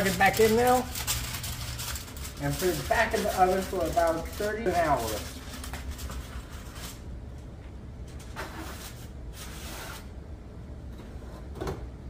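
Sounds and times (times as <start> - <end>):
foil rustling and scraping: 0.0 - 7.0, 8.2 - 10.1
steady low hum: 0.0 - 12.0.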